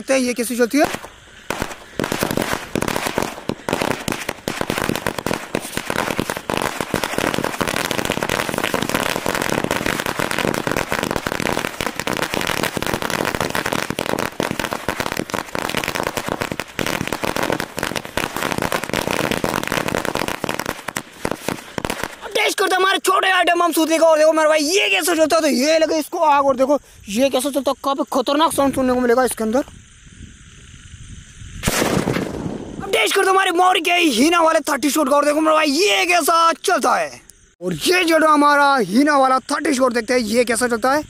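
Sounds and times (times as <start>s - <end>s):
firecracker string bursting: 0.8s - 22.3s, 31.6s - 32.9s.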